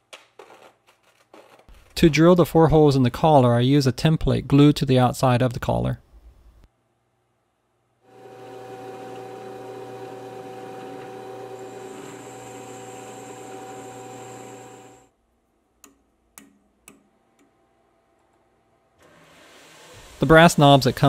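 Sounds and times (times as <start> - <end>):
drilling machine running: 8.1 - 15.1.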